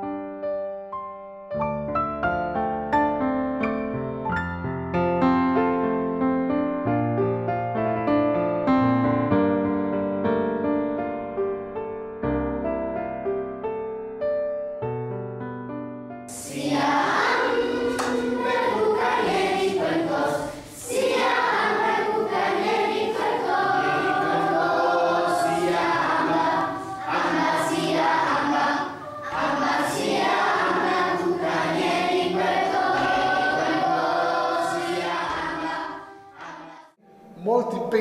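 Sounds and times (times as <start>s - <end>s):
choir singing: 16.3s - 37.0s.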